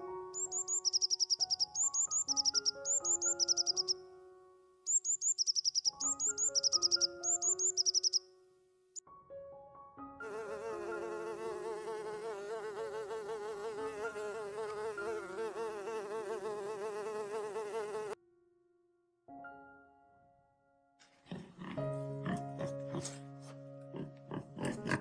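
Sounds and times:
soft background music: 0.0 - 16.4, 19.3 - 25.0
bee buzzing: 0.4 - 3.9, 10.2 - 18.2.

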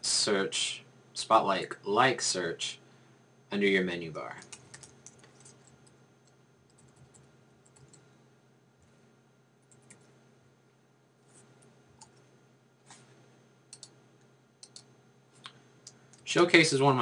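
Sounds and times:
low steady hum: 0.0 - 17.0
mouse and keyboard clicks: 13.7 - 14.0, 14.6 - 16.2.

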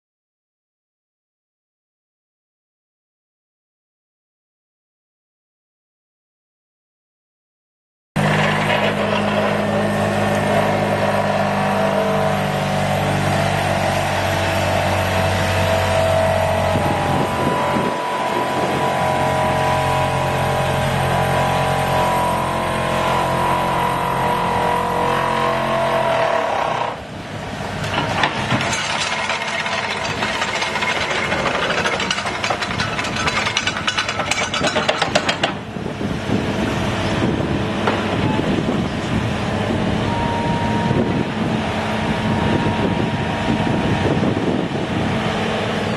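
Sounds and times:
vibro hammer droning: 8.2 - 27.0
diesel engine: 8.2 - 45.9.

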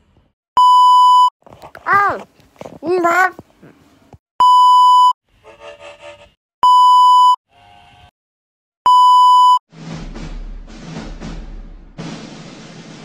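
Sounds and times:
steady test tone beep: 6.6 - 7.4, 8.9 - 9.6
music with drum hits: 9.7 - 13.0.

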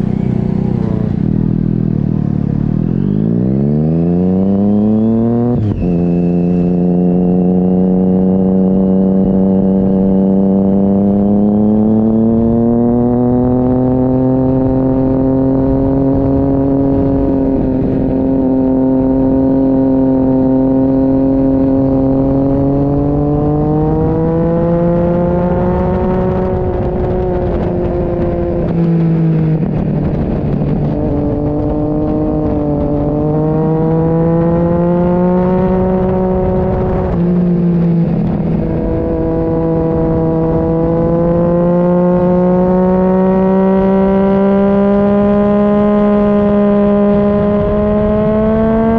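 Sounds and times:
motorcycle engine revving: 0.0 - 48.9
wind rush: 3.1 - 48.9.

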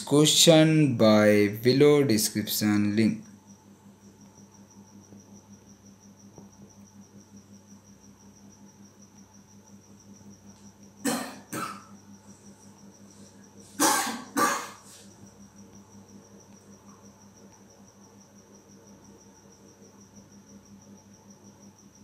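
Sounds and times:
cricket trilling: 0.0 - 22.0
low electrical hum: 0.0 - 22.0
person coughing: 11.0 - 11.9, 13.8 - 14.9.

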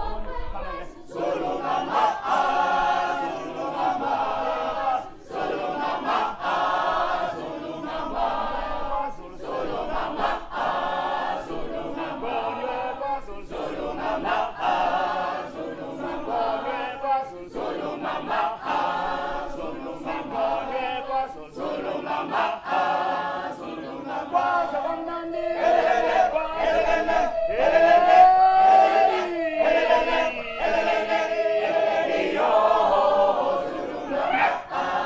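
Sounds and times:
group singing a cappella: 0.0 - 35.0
man leading singing: 25.8 - 32.2.

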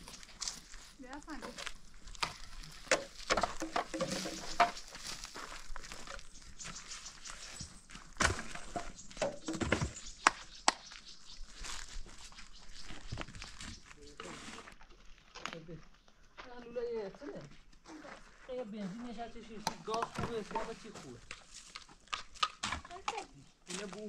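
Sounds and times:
knocks and clatters: 2.2 - 5.0, 8.2 - 10.4.

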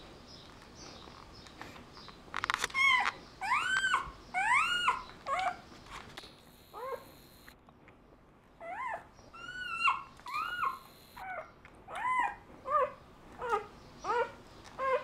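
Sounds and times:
puppy whimpering: 2.7 - 5.7, 6.8 - 7.2, 8.6 - 15.0.

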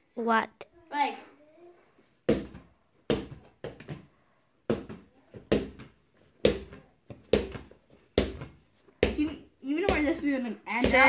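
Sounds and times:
rubber ball bouncing on mats: 2.2 - 11.0.

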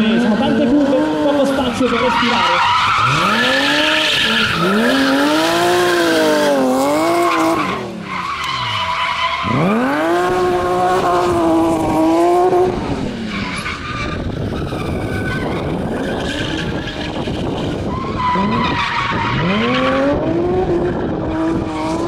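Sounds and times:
tyres skidding and squealing: 0.0 - 22.0
car engine revving hard: 2.9 - 8.8, 9.4 - 13.4, 17.6 - 22.0.

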